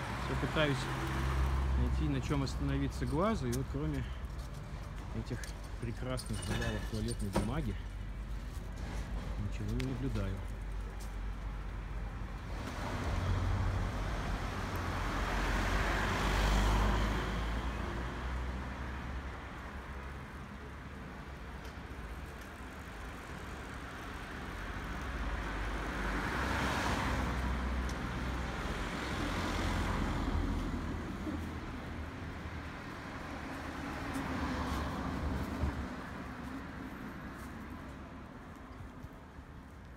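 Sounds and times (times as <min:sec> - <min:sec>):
cars passing by: 0:00.0 - 0:39.9.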